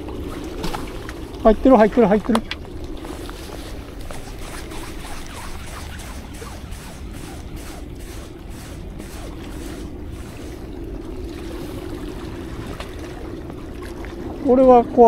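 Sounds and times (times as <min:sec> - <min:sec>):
sea rushing: 0:00.0 - 0:15.0
wind: 0:00.0 - 0:15.0
fishing reel ticking: 0:01.4 - 0:10.7.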